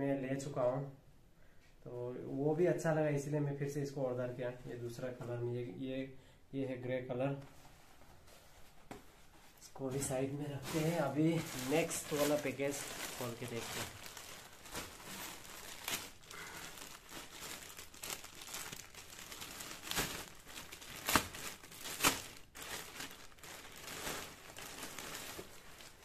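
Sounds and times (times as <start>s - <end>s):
plastic bags crinkling: 9.9s - 26.0s.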